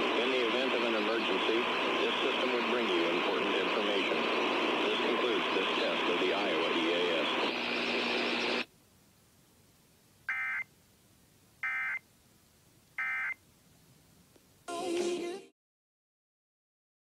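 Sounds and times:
broadcast audio: 0.0s - 10.7s, 14.4s - 15.5s.

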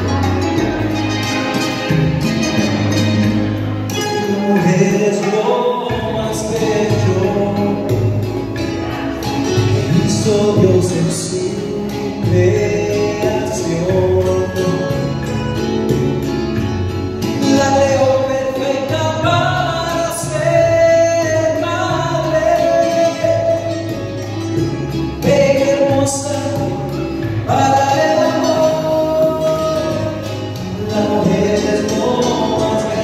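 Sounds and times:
backing music: 0.0s - 33.0s
man singing into a microphone: 3.6s - 33.0s.

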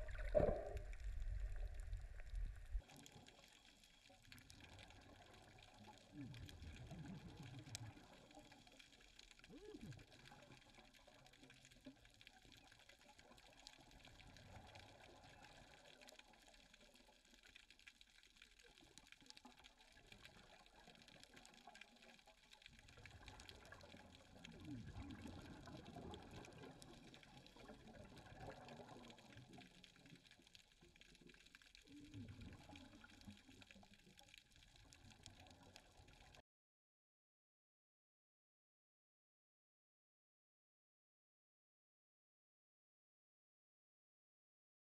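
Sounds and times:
diver's bubbles gurgling underwater: 0.0s - 3.3s, 22.8s - 30.1s
fine crackle: 0.0s - 36.4s.

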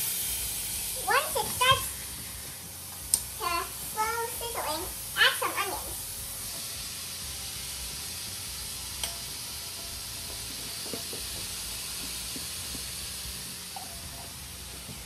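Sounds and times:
vegetables sizzling in a frying pan: 0.0s - 15.0s.

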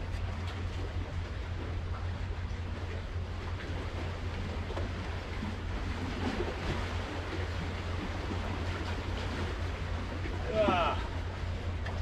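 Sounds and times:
river water flowing: 4.1s - 12.0s.

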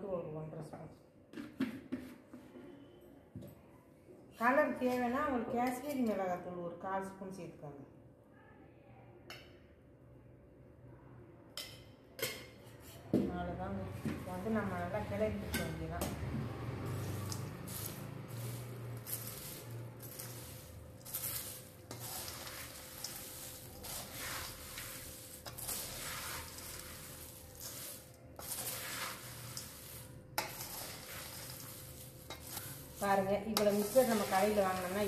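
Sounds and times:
ladle stirring dry snacks in steel: 16.4s - 35.0s.

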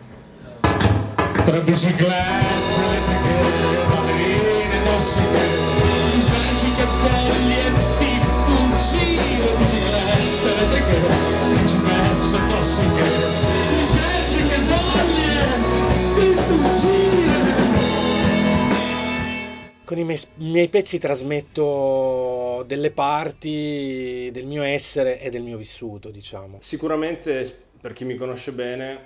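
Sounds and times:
drums: 0.5s - 22.4s
bass guitar: 1.1s - 19.9s
man singing: 1.5s - 18.4s
electric guitar: 1.8s - 19.8s.

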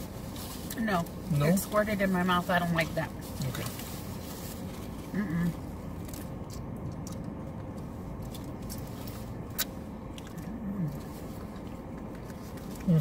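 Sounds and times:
steady low hum: 0.0s - 13.0s
chewing and lip smacks: 6.0s - 13.0s.

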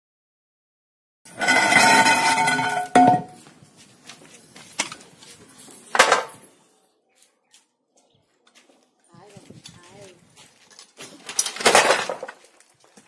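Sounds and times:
metal sheet clanging: 1.3s - 3.4s, 11.1s - 12.4s
sheet metal rattling and scraping: 1.3s - 3.4s, 10.8s - 12.5s.

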